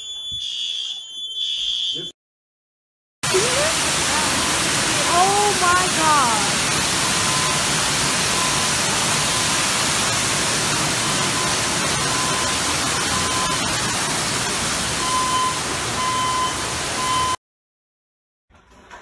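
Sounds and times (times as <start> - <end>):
electronic beep: 0.0 - 2.1
water pouring onto flooded floor: 3.2 - 17.4.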